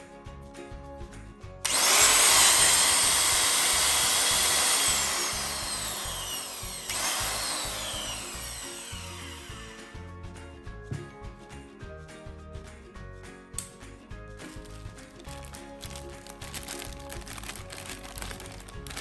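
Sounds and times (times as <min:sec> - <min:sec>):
electric motor whining: 0:01.6 - 0:10.0.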